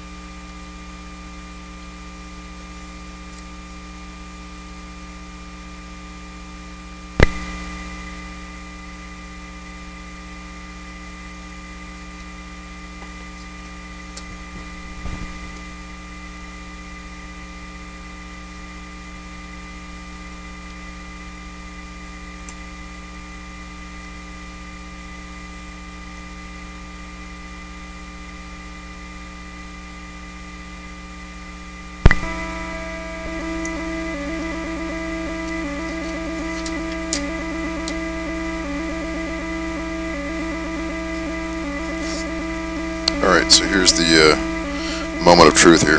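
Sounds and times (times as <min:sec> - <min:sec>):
mains hum with buzzing: 0:00.0 - 0:45.9
thin high whine: 0:00.0 - 0:45.9
loud pop: 0:07.2 - 0:07.6, 0:32.1 - 0:32.4.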